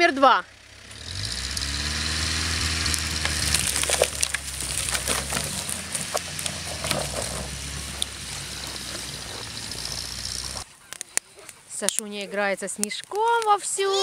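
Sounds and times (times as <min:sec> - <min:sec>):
van engine running under load: 0:00.0 - 0:10.6
snow and branches crunching: 0:00.8 - 0:10.9.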